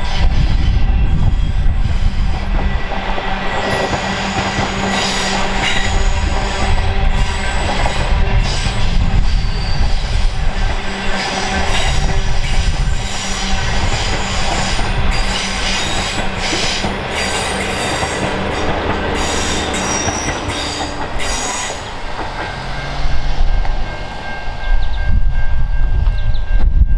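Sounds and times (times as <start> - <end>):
train wheels clacking on rails: 0.0 - 26.9
wheel squeal: 11.2 - 21.9.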